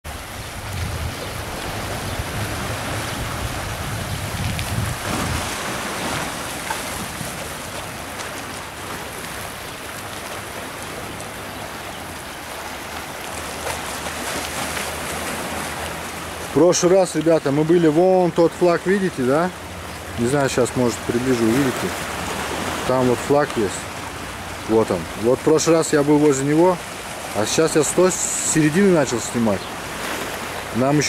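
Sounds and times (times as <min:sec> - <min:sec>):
wind buffeting microphone: 0:00.0 - 0:09.6
sea waves splashing over rocks: 0:00.1 - 0:31.0.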